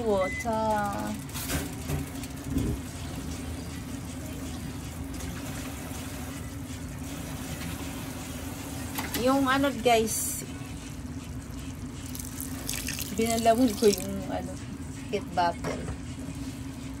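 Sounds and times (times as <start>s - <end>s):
water pouring into pot: 11.5s - 14.2s.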